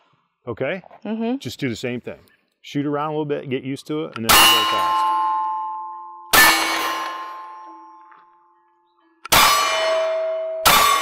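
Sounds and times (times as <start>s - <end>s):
steel targets ringing: 4.3s - 8.1s, 9.3s - 11.0s
gunshots: 6.4s - 7.4s, 9.3s - 11.0s.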